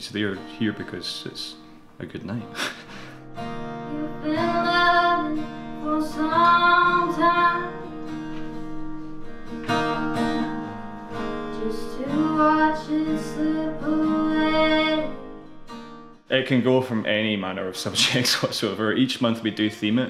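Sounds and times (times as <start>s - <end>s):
acoustic guitar: 0.0s - 20.0s
woman singing: 3.8s - 7.9s, 11.4s - 15.3s.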